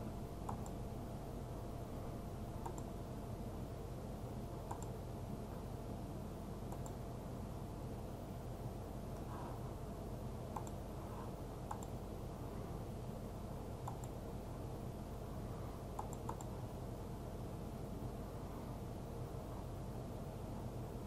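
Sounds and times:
low hum of room noise: 0.0s - 21.0s
computer mouse clicks: 0.4s - 0.8s, 2.6s - 2.9s, 4.6s - 5.0s, 6.7s - 7.0s, 10.5s - 10.8s, 11.6s - 12.0s, 13.8s - 14.2s, 15.9s - 16.6s.

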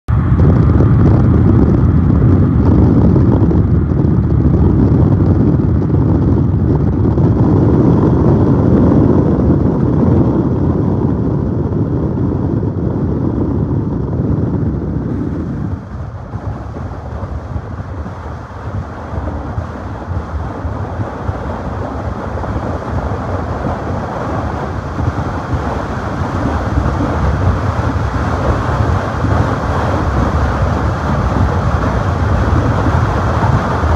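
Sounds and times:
car road and wind noise: 0.1s - 33.9s.

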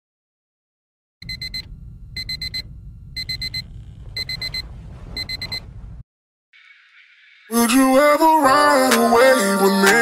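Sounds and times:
electronic alarm beeping: 1.2s - 5.7s
low rumble: 1.8s - 6.0s.

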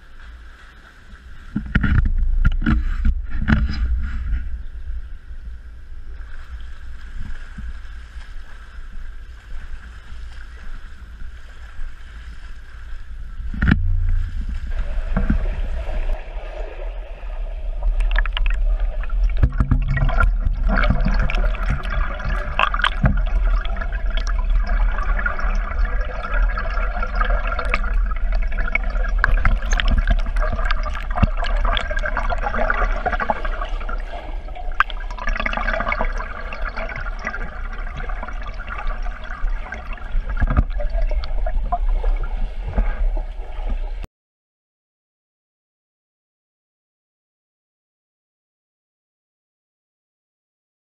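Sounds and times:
low rumble: 0.0s - 44.1s
muffled underwater rush: 0.0s - 44.1s
underwater clicks and bubbling: 0.0s - 44.1s
water sloshing and gurgling: 0.0s - 44.1s
thump: 13.5s - 15.4s.

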